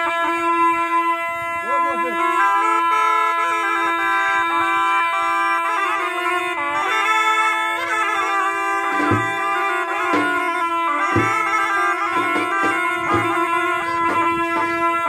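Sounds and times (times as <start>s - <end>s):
reedy wind instrument melody: 0.0s - 15.0s
held drone: 1.4s - 15.0s
bass drum striking: 9.0s - 9.4s, 11.1s - 11.4s, 12.1s - 14.6s.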